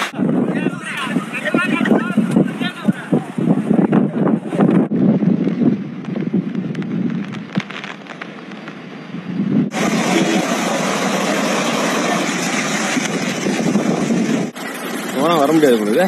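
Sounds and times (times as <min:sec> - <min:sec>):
wind: 0:00.0 - 0:16.0
rain: 0:05.3 - 0:16.0
floodwater rushing along street: 0:09.7 - 0:16.0.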